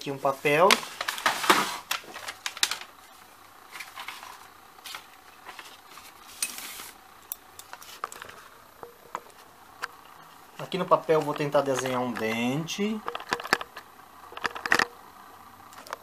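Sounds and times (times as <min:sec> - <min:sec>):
paper rustling: 0:00.4 - 0:07.0
small objects clicking and tapping: 0:13.0 - 0:15.0.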